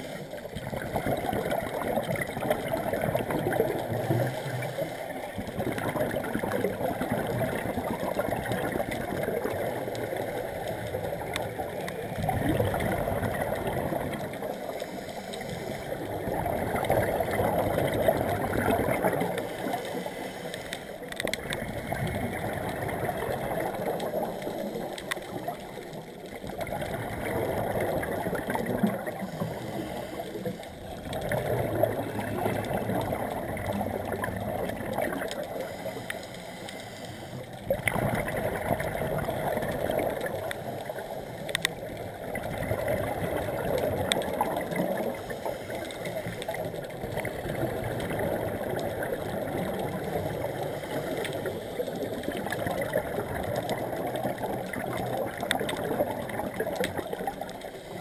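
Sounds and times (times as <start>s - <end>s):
exhaled bubbles gurgling: 0.0s - 58.0s
scuba regulator breathing underwater: 2.7s - 5.8s, 12.0s - 26.0s, 27.2s - 33.6s, 35.1s - 38.3s, 42.8s - 46.5s.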